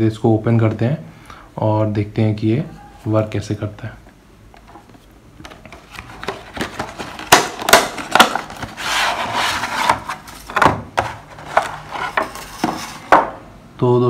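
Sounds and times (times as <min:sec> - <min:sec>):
cardboard scraping and rubbing: 0:04.9 - 0:13.2
stiff plastic snapping and crinkling: 0:05.4 - 0:08.8.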